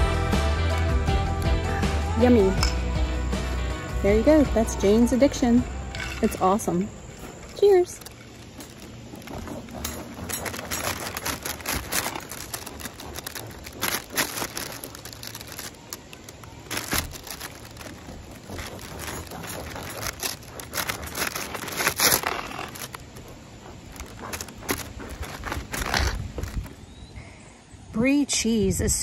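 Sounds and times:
plastic bread bag crinkling: 7.1 - 26.8
knife sawing through crusty bread: 8.7 - 15.9, 16.7 - 26.6.

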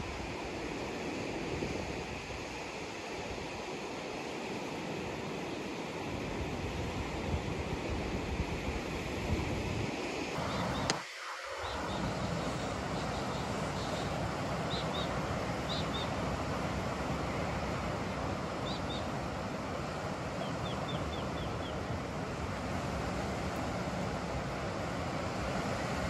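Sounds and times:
wind: 0.0 - 26.0
bird chirps: 10.4 - 10.9, 11.6 - 16.2, 18.6 - 19.1, 20.4 - 21.8.

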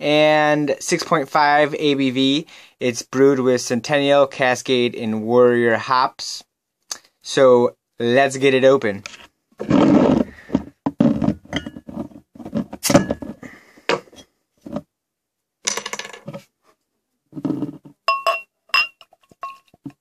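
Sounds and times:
glass clinking on glass: 11.5 - 11.8, 18.1 - 19.7.

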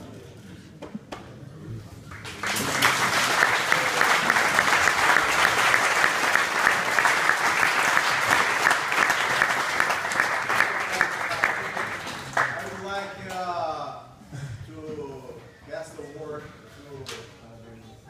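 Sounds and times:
audience clapping: 2.1 - 12.9.

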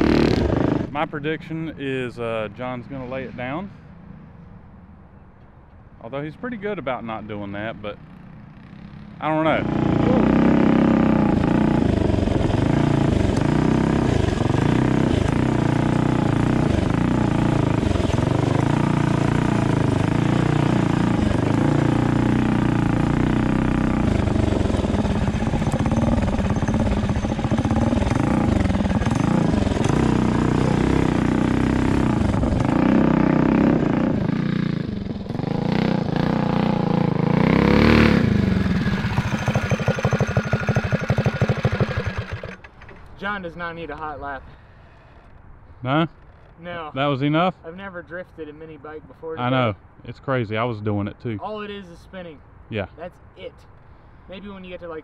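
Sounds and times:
mini bike engine revving: 0.0 - 1.0, 8.6 - 43.0.

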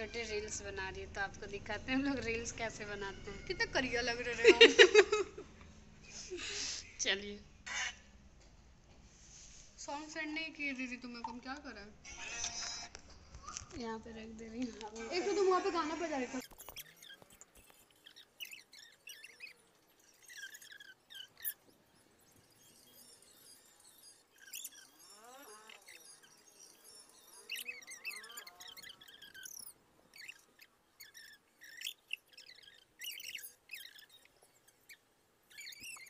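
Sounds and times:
small birds chirping: 13.3 - 36.0
lower gliding bird calls: 16.4 - 36.0.

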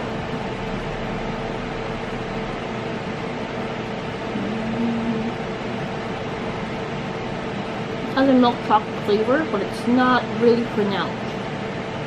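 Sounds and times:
appliance hum and hiss: 0.0 - 12.0
brief low hum: 4.3 - 5.5.

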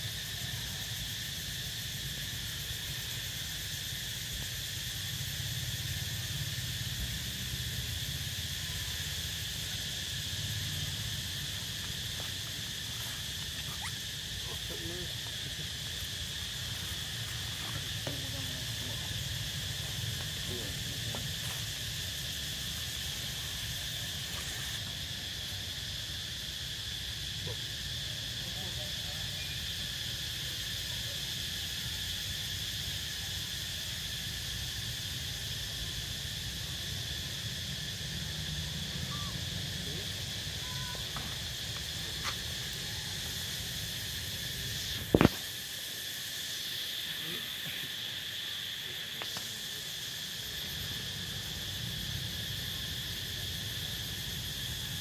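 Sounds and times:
forest insects droning: 0.0 - 55.0.

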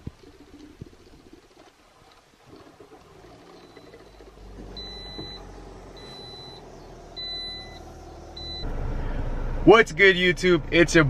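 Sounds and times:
car engine starting and idling: 2.6 - 11.0
car warning chime beeps: 3.6 - 8.7.

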